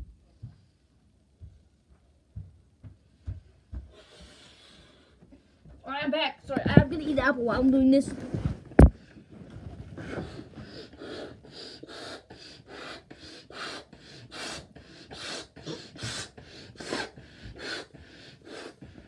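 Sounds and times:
person gasping for air: 10.0s - 19.0s
person blowing up a balloon: 11.0s - 18.8s.

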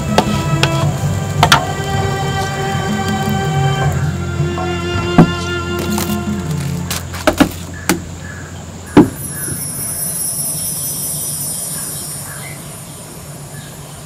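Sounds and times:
high insect drone: 0.0s - 14.0s
sharp knocks: 8.9s - 9.2s.

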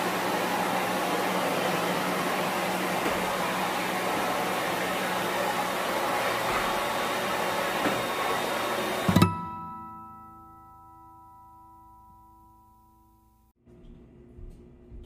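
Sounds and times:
vacuum cleaner running: 0.0s - 9.6s.

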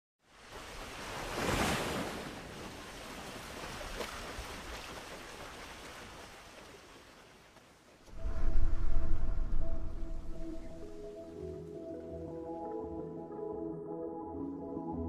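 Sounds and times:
ocean waves rushing: 0.3s - 7.1s, 8.1s - 11.3s
music intro with steady tones: 8.2s - 15.0s.

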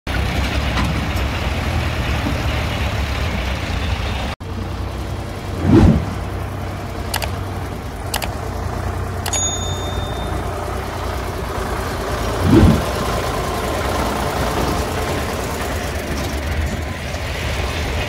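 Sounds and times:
tractor diesel engine running: 0.1s - 18.0s
low rumble: 3.2s - 8.1s.

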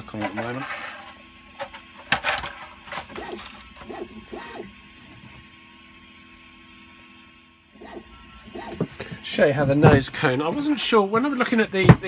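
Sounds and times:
light scraping: 0.2s - 1.2s.

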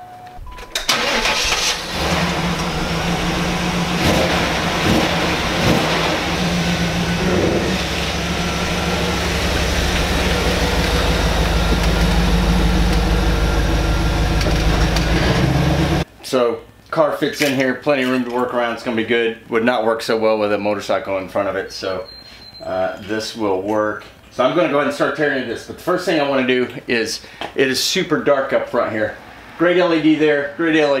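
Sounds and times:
car engine starting and rumbling: 0.4s - 16.1s.

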